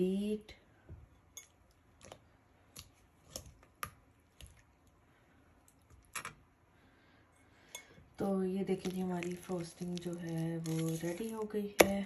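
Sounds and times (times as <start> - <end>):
whisk squishing cream cheese: 8.7 - 12.0.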